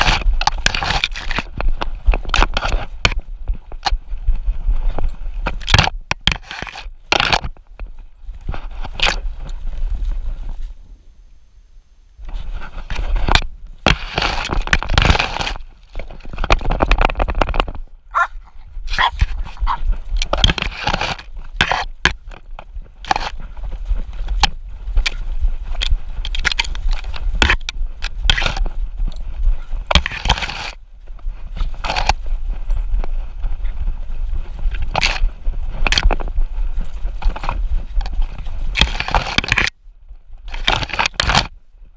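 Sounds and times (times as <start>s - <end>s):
camera rubbing and knocking on mount: 0.0s - 4.0s, 4.8s - 9.4s, 12.3s - 28.8s, 29.5s - 30.8s, 31.5s - 32.3s, 34.6s - 36.4s, 37.0s - 39.8s, 40.5s - 41.6s.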